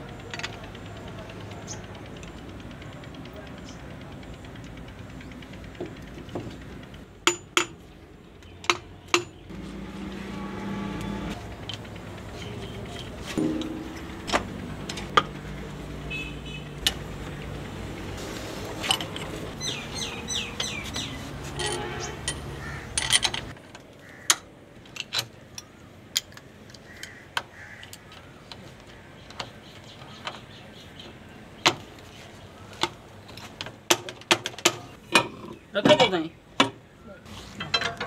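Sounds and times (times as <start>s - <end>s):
steady low hum: 9.5s - 20.9s
birds chirping: 19.6s - 21.4s.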